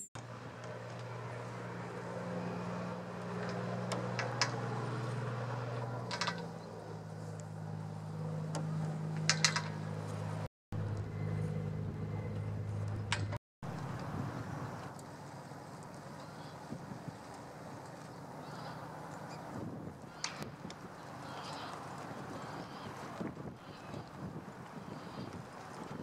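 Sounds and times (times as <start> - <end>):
low engine hum: 0.0 - 26.0.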